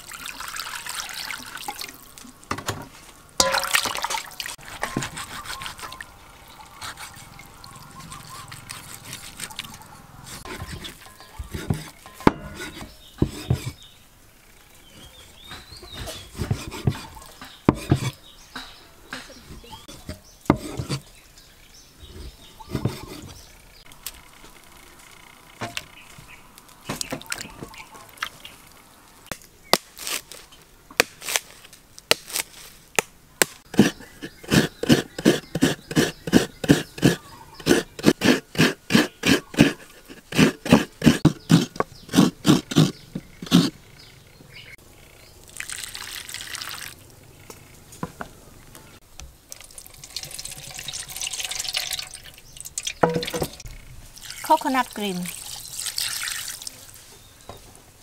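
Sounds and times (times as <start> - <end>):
coconut grating rasps: 4.6 - 13.8, 15.7 - 18.2, 19.7 - 21.1, 22.2 - 23.4, 33.6 - 43.8
knife on wooden cutting board: 10.3 - 13.8, 15.9 - 18.2, 19.9 - 21.0, 22.7 - 23.3, 33.8 - 43.7.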